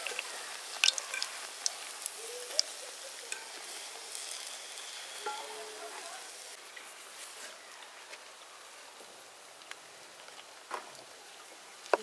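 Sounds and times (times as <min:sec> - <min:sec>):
donuts sizzling in hot oil: 0:00.0 - 0:07.7
metal spoon clicking on pan: 0:00.8 - 0:01.3.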